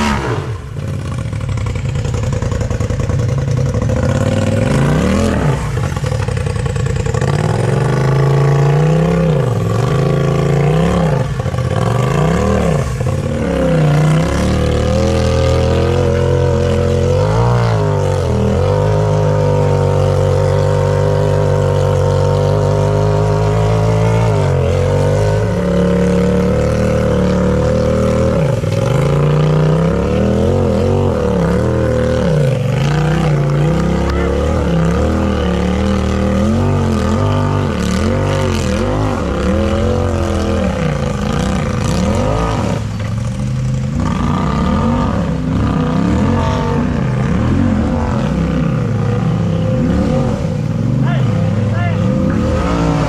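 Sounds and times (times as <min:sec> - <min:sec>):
off-road vehicle engine revving: 0:00.0 - 0:53.0.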